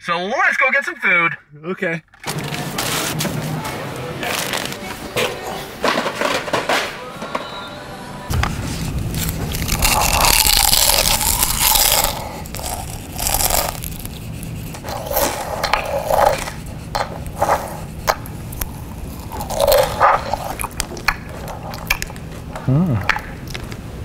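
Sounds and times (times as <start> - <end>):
chewing and crunching through megaphone: 9.2 - 23.8.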